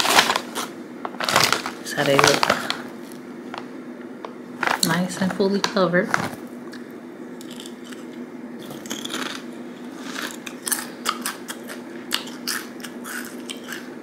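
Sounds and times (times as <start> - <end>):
person chewing potato chip: 0.0 - 2.6, 7.4 - 14.0
steady low hum: 0.0 - 14.0.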